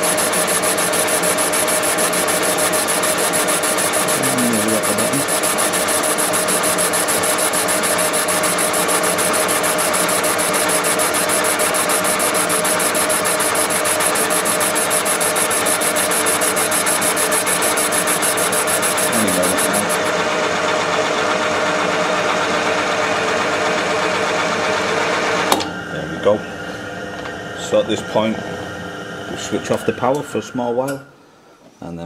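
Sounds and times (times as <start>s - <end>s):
boring machine drone: 0.0s - 31.2s
fast high ticking: 11.2s - 20.1s.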